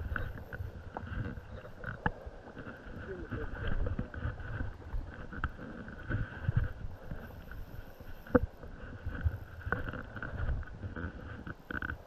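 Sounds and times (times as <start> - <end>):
river water running: 0.0 - 12.0
wind buffeting microphone: 0.0 - 12.0.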